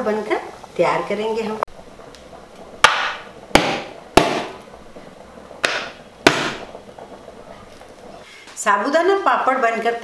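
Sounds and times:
plastic lids knocking on worktop: 0:05.6 - 0:06.7.

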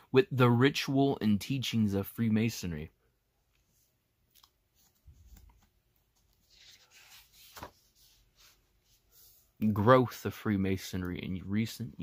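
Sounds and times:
book pages turning: 0:04.4 - 0:09.1.

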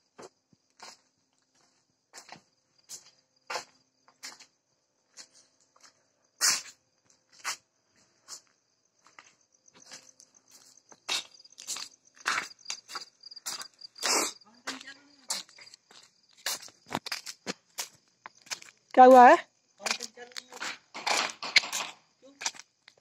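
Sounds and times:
crickets chirping: 0:00.0 - 0:23.0
knocks and scuffs: 0:14.7 - 0:18.8.

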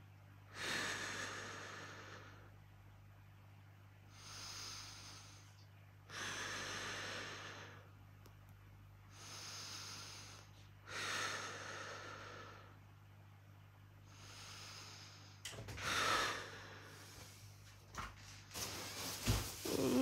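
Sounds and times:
woman breathing deeply: 0:00.5 - 0:02.6, 0:04.1 - 0:08.0, 0:09.1 - 0:12.8, 0:14.0 - 0:17.6, 0:18.5 - 0:20.0.

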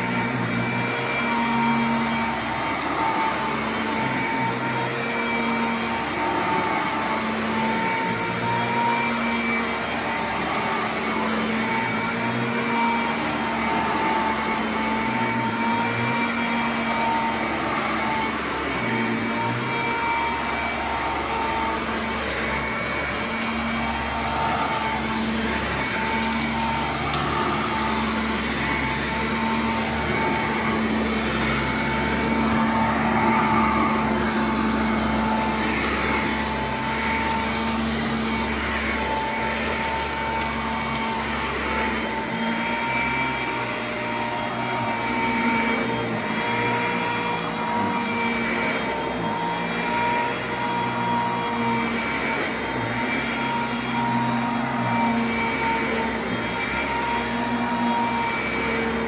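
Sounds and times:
grit crackling in vacuum: 0:00.0 - 0:14.0, 0:18.6 - 0:50.0
vacuum cleaner on carpet: 0:00.0 - 0:59.0.

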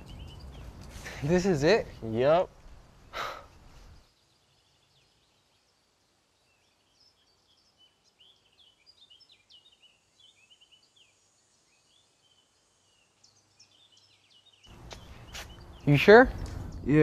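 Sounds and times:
faint songbird chirping: 0:00.0 - 0:17.0.

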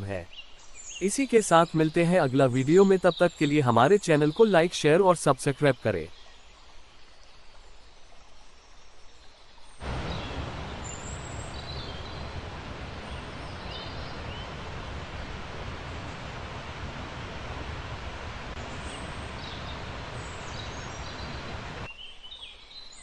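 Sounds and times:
steady rushing noise: 0:09.8 - 0:21.9.

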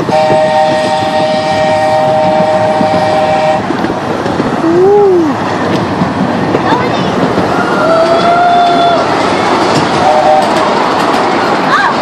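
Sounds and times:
steam locomotive whistle: 0:00.0 - 0:03.7, 0:10.0 - 0:10.7
train running: 0:00.0 - 0:12.0.

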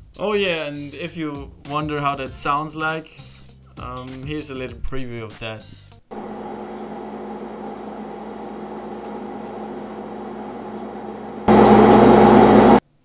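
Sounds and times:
mri scanner buzzing drone: 0:06.1 - 0:12.8.

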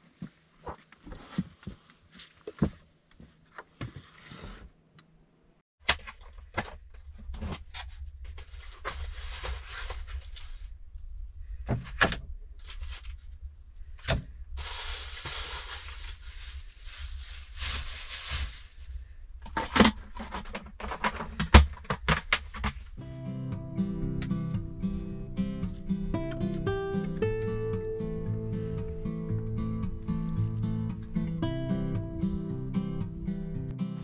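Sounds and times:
plastic bag crinkling: 0:08.4 - 0:10.7, 0:14.6 - 0:19.1.

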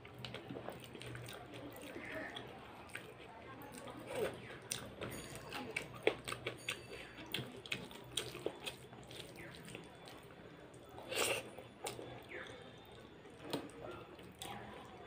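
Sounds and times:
wet squelching of food mixed by hand: 0:07.3 - 0:12.6.

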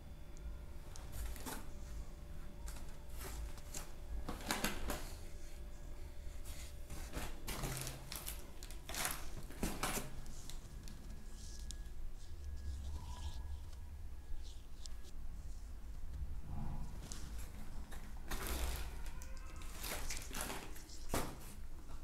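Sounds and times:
plastic and cardboard rustling: 0:01.0 - 0:02.0, 0:02.6 - 0:05.3, 0:06.4 - 0:11.9, 0:17.2 - 0:22.0.

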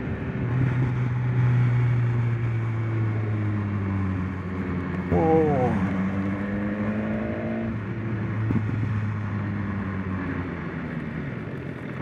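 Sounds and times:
wind noise: 0:08.0 - 0:09.2.

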